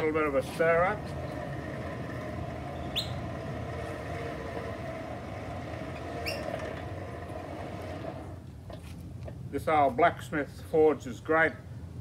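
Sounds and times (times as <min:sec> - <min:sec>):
hand-cranked forge blower whirring: 0:00.0 - 0:08.8.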